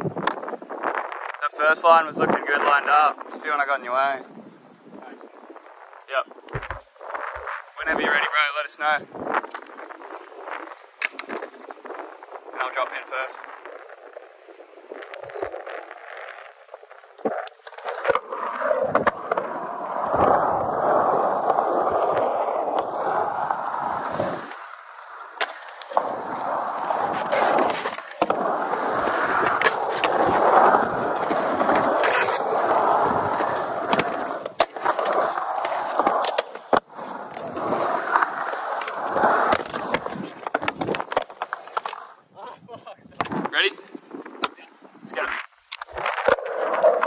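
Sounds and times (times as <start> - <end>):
skateboard wheels rolling on concrete: 0.0 - 47.0
skateboard clacks: 10.7 - 11.8, 17.2 - 42.2.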